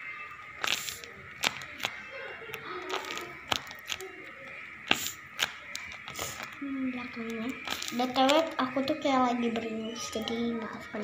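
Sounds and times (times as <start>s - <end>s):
paper crinkling in hands: 0.5s - 8.5s.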